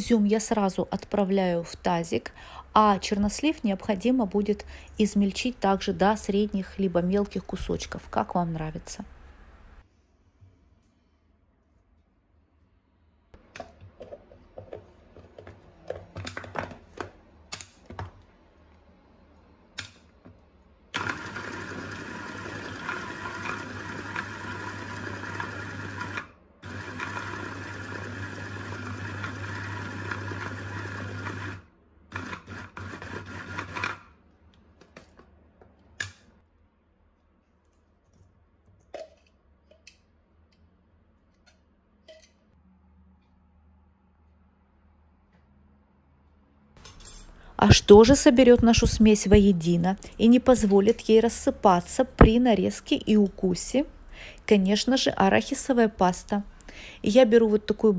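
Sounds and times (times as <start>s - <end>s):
hand blender motor chopping: 21.0s - 34.0s.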